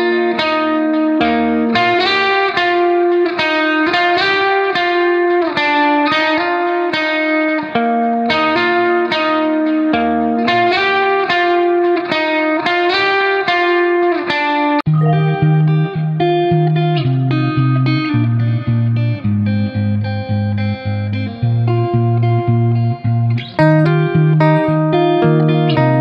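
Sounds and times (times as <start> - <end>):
plucked melody over sustained chords: 14.9 - 26.0.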